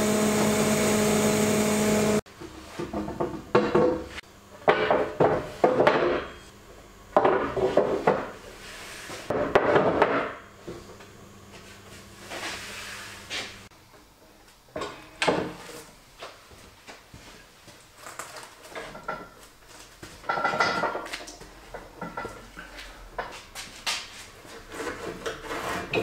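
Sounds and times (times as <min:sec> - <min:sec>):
wooden boards knocking and scraping: 0:02.8 - 0:06.3, 0:09.3 - 0:10.4.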